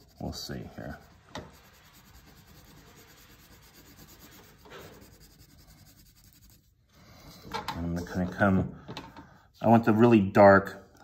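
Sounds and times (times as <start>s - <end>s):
crayon scribbling on paper: 0.0s - 6.9s.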